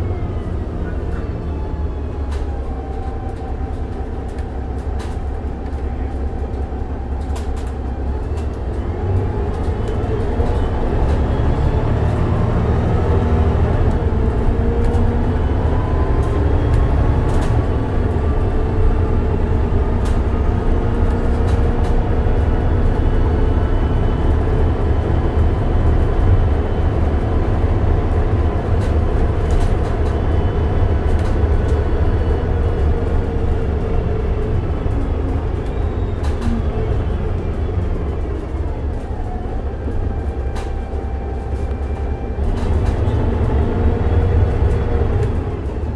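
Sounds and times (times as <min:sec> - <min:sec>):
bus engine rumble: 0:00.0 - 0:45.9.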